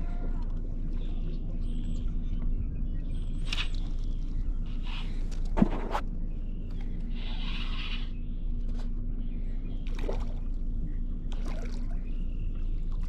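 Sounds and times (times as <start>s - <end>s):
faint steady hum: 0.0s - 13.0s
low wind rumble: 0.0s - 13.0s
water lapping against boat hull: 9.7s - 13.0s.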